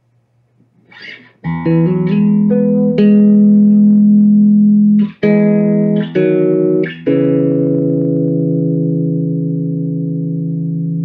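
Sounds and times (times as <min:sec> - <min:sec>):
electric guitar: 0:00.8 - 0:11.0.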